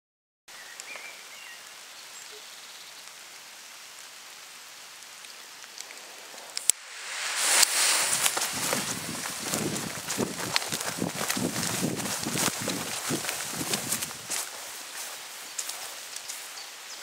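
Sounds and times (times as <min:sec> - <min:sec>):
steady outdoor hiss: 0:00.5 - 0:17.0
firework rocket hissing: 0:05.9 - 0:13.5.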